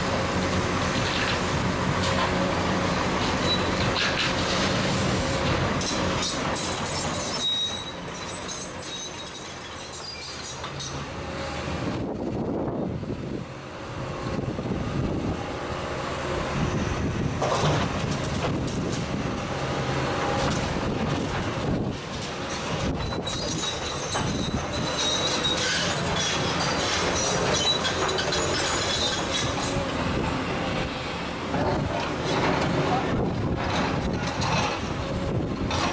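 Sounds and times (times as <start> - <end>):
excavator engine running: 0.0 - 35.9
high-pitched metallic squealing: 5.9 - 11.0, 23.0 - 29.8.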